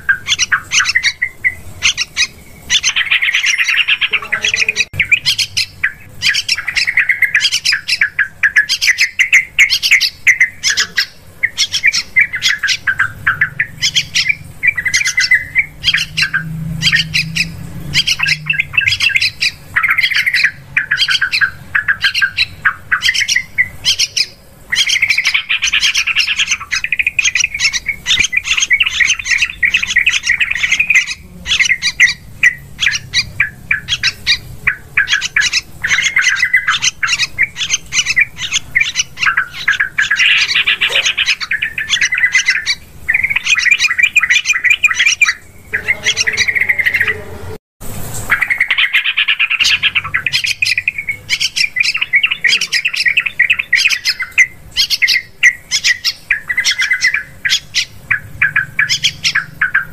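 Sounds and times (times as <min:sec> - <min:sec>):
bulbuls chattering calls: 0:00.0 - 0:47.6, 0:48.2 - 0:59.9.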